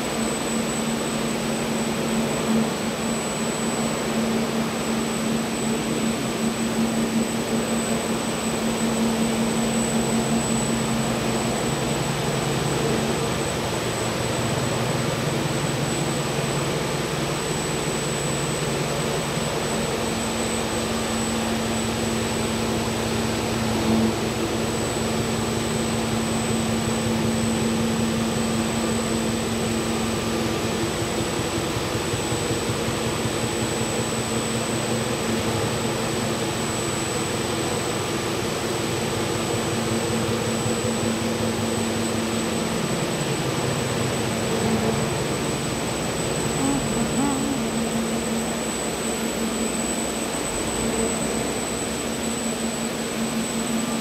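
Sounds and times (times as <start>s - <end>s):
washing machine humming: 0.0s - 54.0s
low drone: 44.4s - 49.1s.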